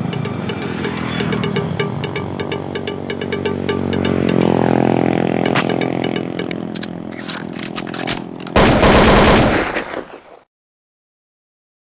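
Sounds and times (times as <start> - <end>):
electronic background music: 0.0 - 8.4.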